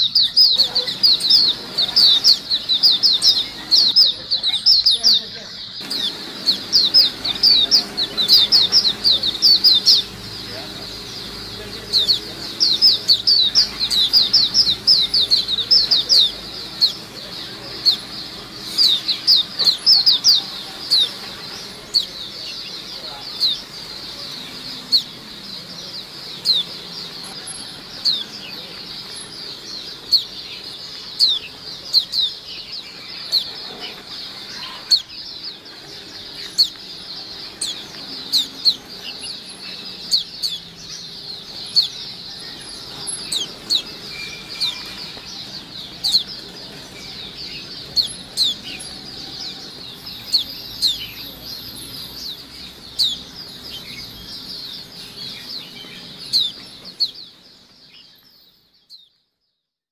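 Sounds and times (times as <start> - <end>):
small birds chirping: 0.0 - 59.9.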